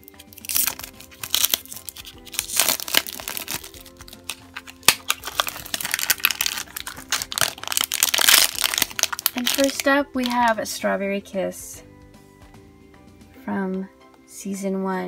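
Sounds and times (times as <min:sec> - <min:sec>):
cellophane and foil crinkling: 0:00.0 - 0:10.6
soft background music: 0:00.0 - 0:15.0.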